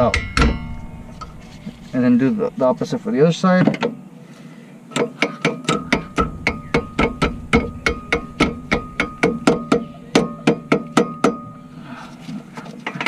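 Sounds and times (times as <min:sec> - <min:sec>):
hammer striking metal bolt: 0:00.0 - 0:01.3, 0:05.0 - 0:11.5.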